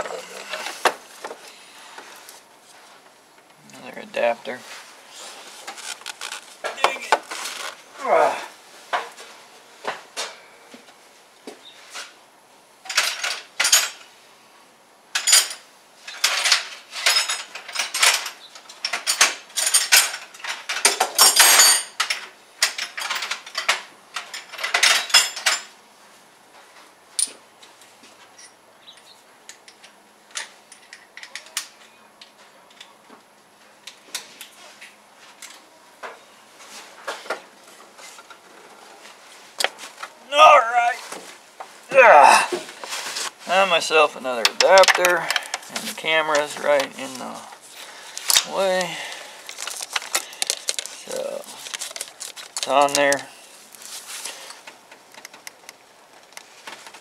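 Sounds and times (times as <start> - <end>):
metal tools clinking and rattling: 12.9 - 14.1, 15.2 - 25.7, 44.4 - 47.4, 48.2 - 54.6.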